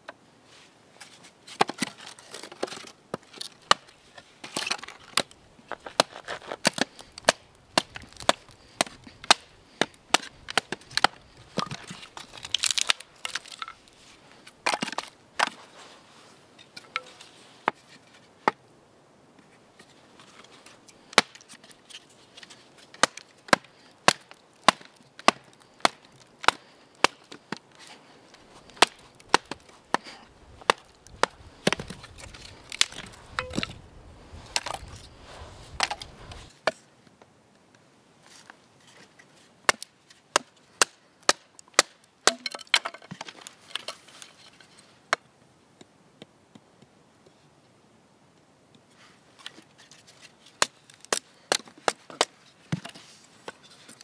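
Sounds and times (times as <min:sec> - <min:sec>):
log knocking on knife spine: 0:30.6 - 0:33.8.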